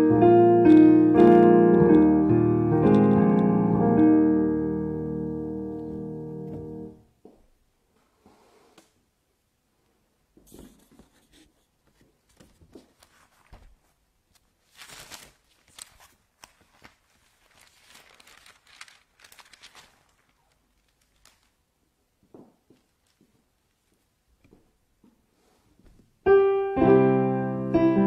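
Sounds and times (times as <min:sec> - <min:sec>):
book pages rustling: 0:10.5 - 0:21.6.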